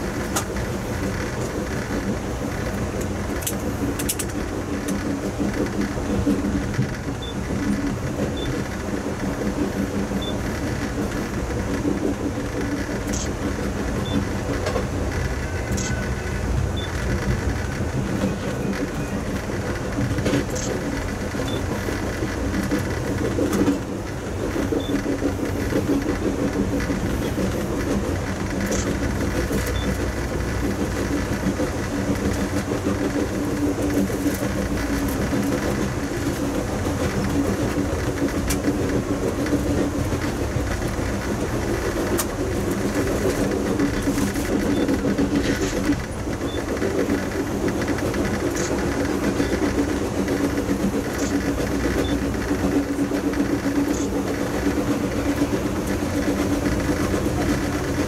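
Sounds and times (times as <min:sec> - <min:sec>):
sharp track clicks: 0:00.0 - 0:58.0
train rumbling along track: 0:00.0 - 0:58.0.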